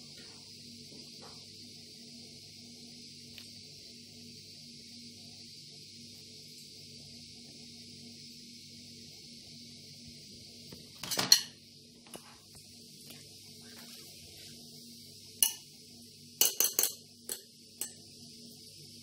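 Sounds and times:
metal spoon clinking on ceramic bowl: 15.4 - 15.6, 16.4 - 18.0.

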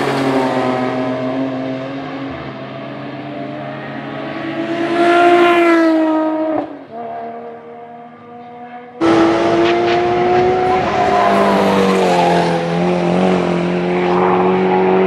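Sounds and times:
racing car engine high revs: 3.4 - 15.0.

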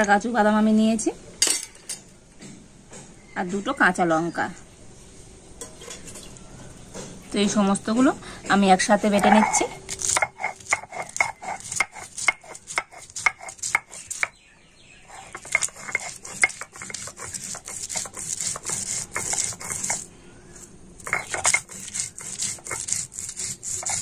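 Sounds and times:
stone grinding strokes: 9.0 - 14.3, 15.1 - 24.0.

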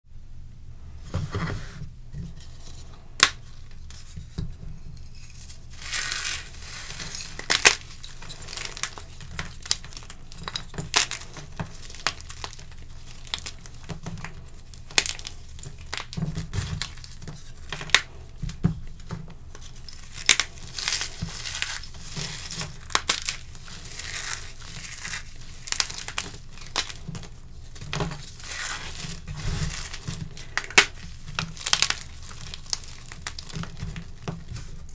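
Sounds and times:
chalk crunching by hand: 5.2 - 16.1
chalk chunks snapping: 5.8 - 18.2, 19.0 - 34.9.

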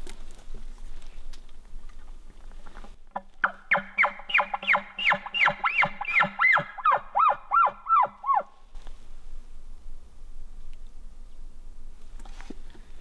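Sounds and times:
elk call squealing notes: 3.4 - 8.6.

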